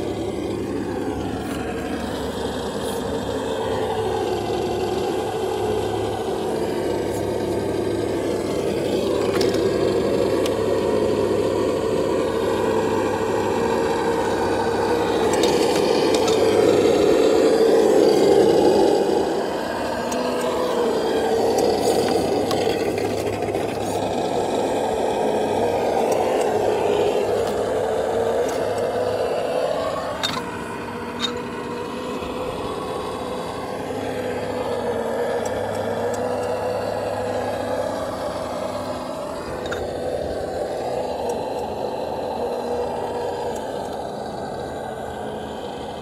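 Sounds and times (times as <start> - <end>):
electric motor and gears whining: 0.0 - 46.0.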